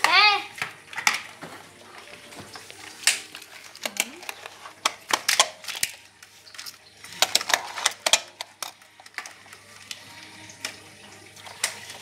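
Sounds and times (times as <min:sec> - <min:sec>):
toy cars clicking and knocking: 0:03.0 - 0:12.0.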